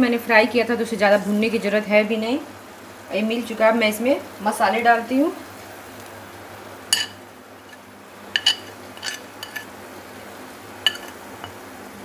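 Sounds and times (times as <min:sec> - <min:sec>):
spoon clinking on ceramic plate: 0:06.9 - 0:07.8, 0:08.4 - 0:09.7, 0:10.8 - 0:11.6.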